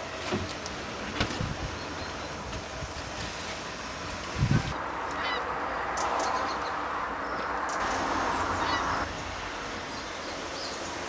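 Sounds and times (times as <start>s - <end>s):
geese honking: 5.1s - 5.5s, 8.3s - 9.1s.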